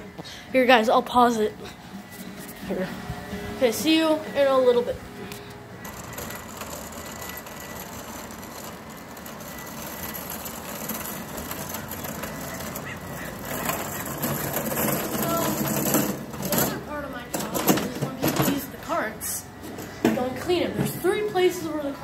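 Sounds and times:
cart rolling over asphalt: 5.8s - 19.1s.

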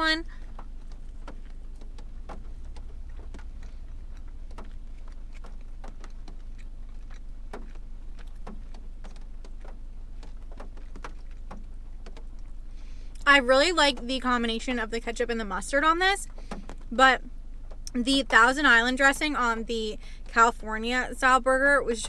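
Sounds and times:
low hum: 0.0s - 22.0s
person chewing: 0.3s - 13.2s.

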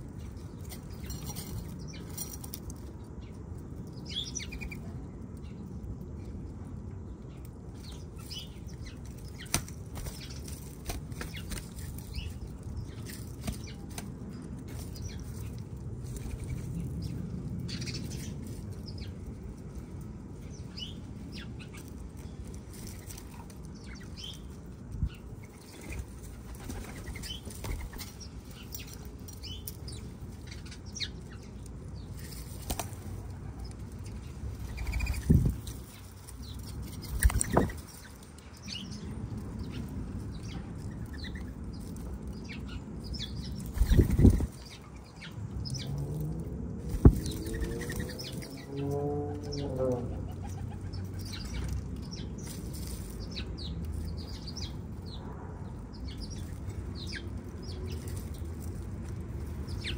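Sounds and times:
bird wings flapping: 32.5s - 33.1s.

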